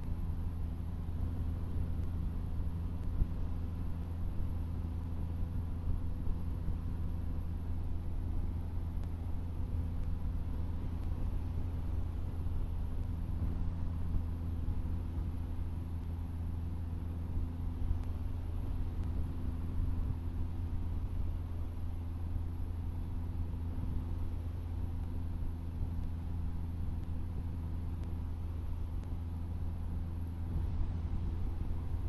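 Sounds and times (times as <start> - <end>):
propeller aircraft engine droning: 0.0 - 32.0.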